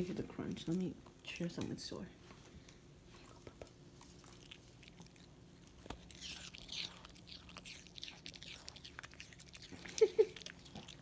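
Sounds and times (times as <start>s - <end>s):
dog crunching apple: 3.2s - 11.0s.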